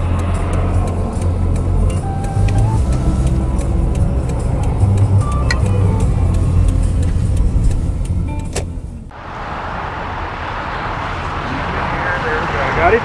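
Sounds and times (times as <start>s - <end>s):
light ticking clicks: 0.0s - 8.8s
car engine and road rumble: 0.0s - 13.0s
steady outdoor hiss: 0.0s - 13.0s.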